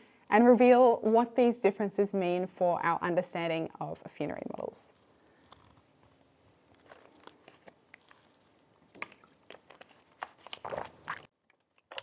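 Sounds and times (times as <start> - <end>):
low background hiss: 0.0 - 6.9
small clicks and rustles: 5.0 - 12.0.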